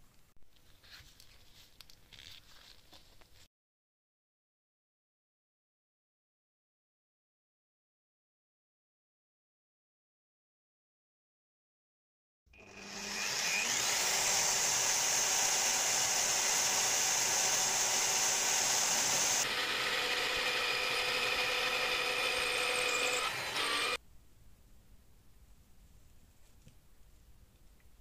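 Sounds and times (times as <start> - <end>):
drill press boring into wood: 12.6 - 24.0.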